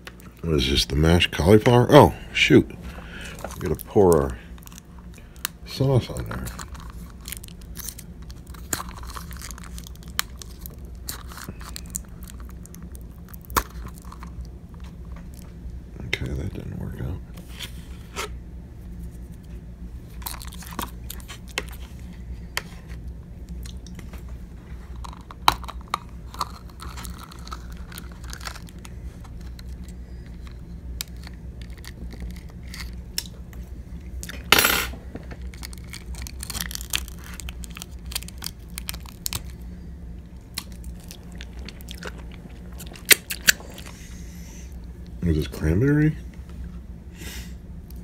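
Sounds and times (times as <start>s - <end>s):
plastic cup clicking and crinkling: 25.0s - 29.9s.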